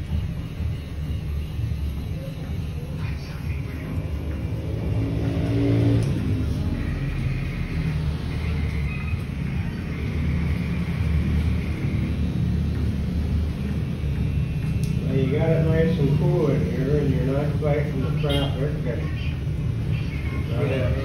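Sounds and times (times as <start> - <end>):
faint high whine: 0.0 - 4.5.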